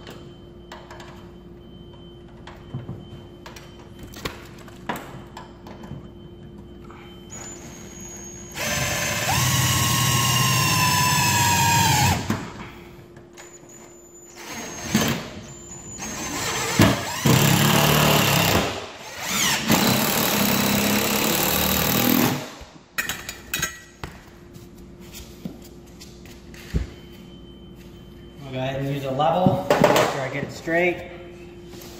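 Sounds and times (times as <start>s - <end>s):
cordless drill driving screws: 16.0s - 22.4s.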